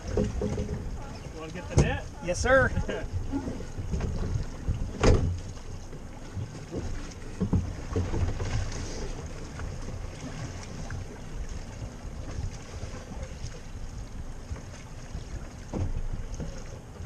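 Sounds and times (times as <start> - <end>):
knocks on boat: 0.0 - 3.1, 3.8 - 5.6, 6.4 - 8.7, 15.6 - 16.7
water sloshing against hull: 0.0 - 17.0.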